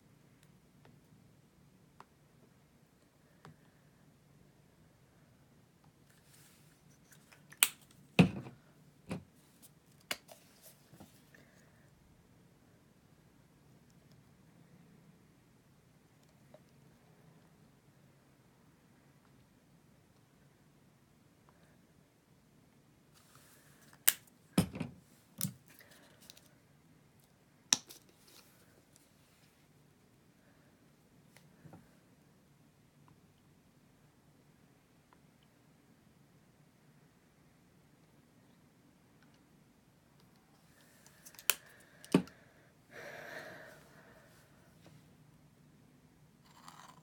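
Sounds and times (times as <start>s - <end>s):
plastic caps snapping: 41.2s - 42.3s.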